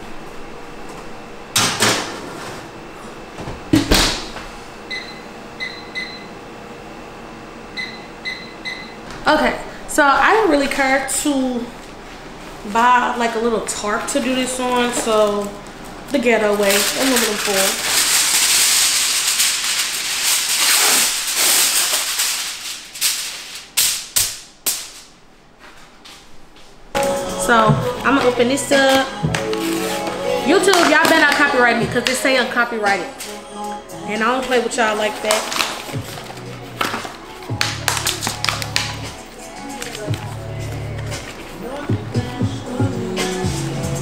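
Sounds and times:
oven door shutting: 3.3s - 4.6s
microwave keypad beeps: 4.9s - 6.3s, 7.8s - 9.0s
aluminum foil crinkling: 14.1s - 24.1s, 34.5s - 41.9s.

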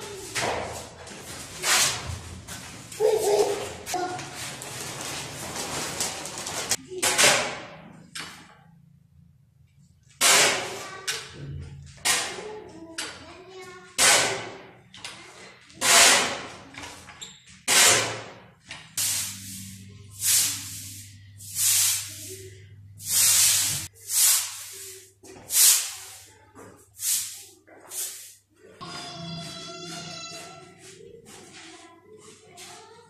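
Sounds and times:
broom sweeping: 0.0s - 5.7s, 19.0s - 28.5s
shovel scraping on concrete: 1.5s - 2.2s, 10.2s - 11.0s, 15.8s - 16.6s, 17.6s - 18.4s.

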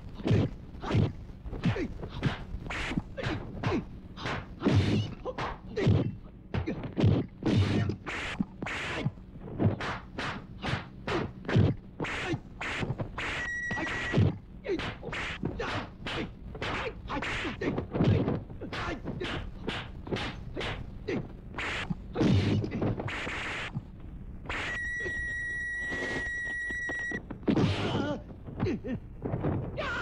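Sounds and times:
punch and kick impacts: 3.6s - 8.0s
high steady tone: 13.3s - 14.2s, 24.5s - 27.2s.

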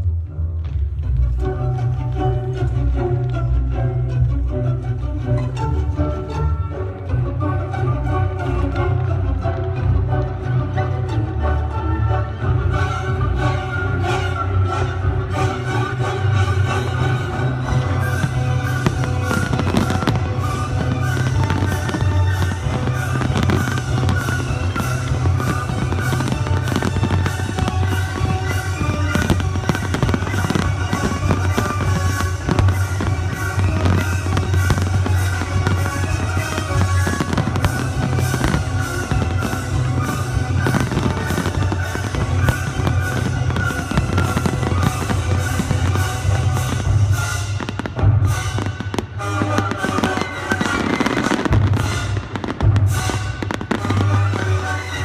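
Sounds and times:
fireworks bursting: 15.0s - 55.0s.

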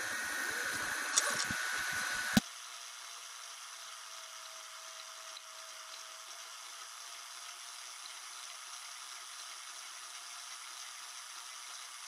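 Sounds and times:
three d printer whining and whirring: 0.0s - 2.4s.

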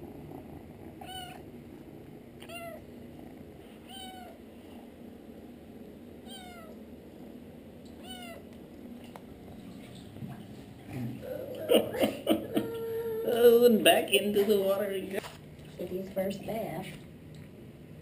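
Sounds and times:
kitten meowing: 1.0s - 1.4s, 2.4s - 2.8s, 3.9s - 4.4s, 6.2s - 6.7s, 8.0s - 8.4s.

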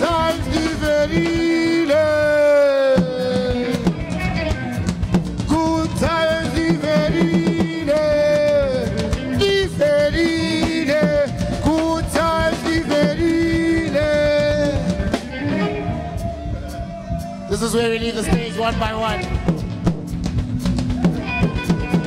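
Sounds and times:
live band playing: 0.0s - 22.0s
sliding melody line: 0.0s - 22.0s.

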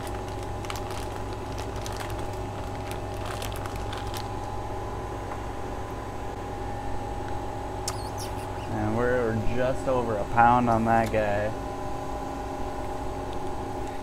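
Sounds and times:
plastic bag crinkling: 0.0s - 4.5s
steady machine hum: 0.0s - 14.0s.

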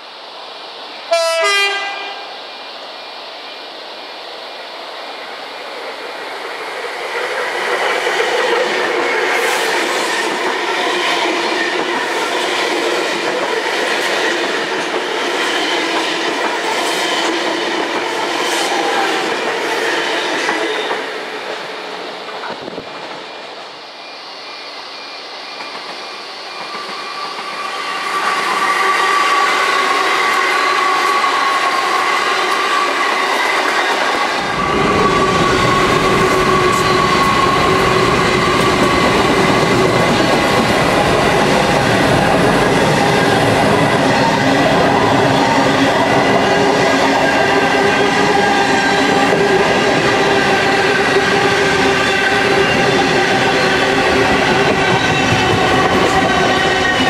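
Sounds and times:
electric train passing at speed: 0.0s - 57.0s
train wheels clicking over rail joints: 52.6s - 57.0s.

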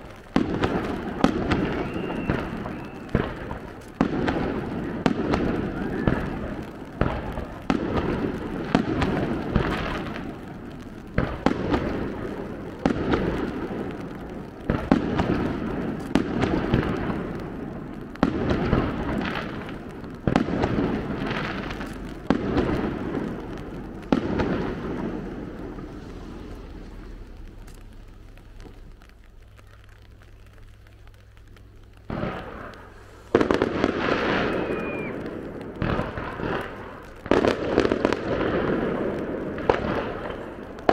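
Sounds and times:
fireworks shells bursting: 0.0s - 40.9s.

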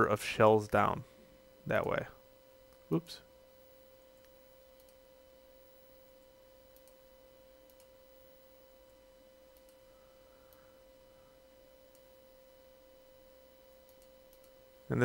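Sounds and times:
faint steady tone: 0.0s - 15.0s.

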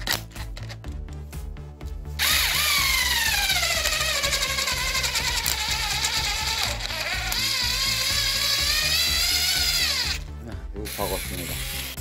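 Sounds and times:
cordless screwdriver motor whine: 2.2s - 10.3s, 10.9s - 12.0s.

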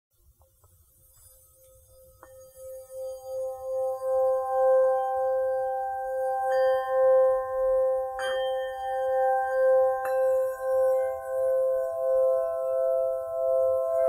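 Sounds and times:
ringing bell-like tones: 1.2s - 14.0s.

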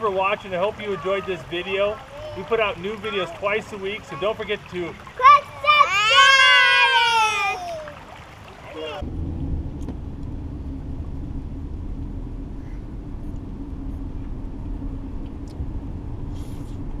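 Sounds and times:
car engine rumble from inside: 8.8s - 17.0s.

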